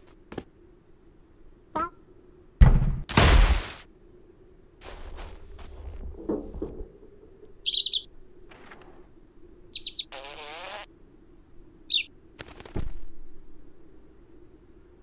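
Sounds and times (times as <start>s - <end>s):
cartoon bird chirping: 1.8s - 2.0s, 7.6s - 8.1s, 9.8s - 10.7s.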